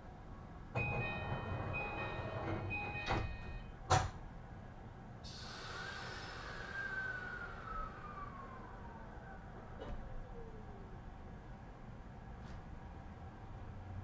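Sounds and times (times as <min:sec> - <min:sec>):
door-closing chime: 0:00.8 - 0:03.8
sliding doors shutting: 0:00.8 - 0:04.2
air hiss: 0:05.2 - 0:08.0.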